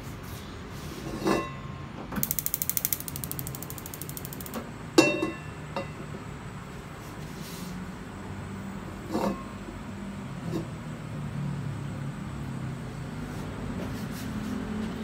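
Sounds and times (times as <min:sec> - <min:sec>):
gas igniter clicking: 0:02.2 - 0:04.6.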